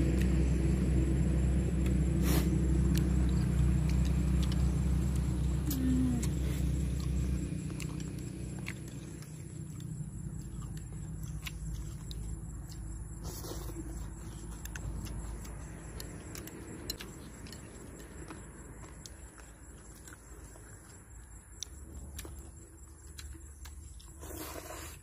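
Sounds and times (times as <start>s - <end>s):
low steady rumble: 0.0s - 25.0s
slurping noodles: 24.2s - 25.0s.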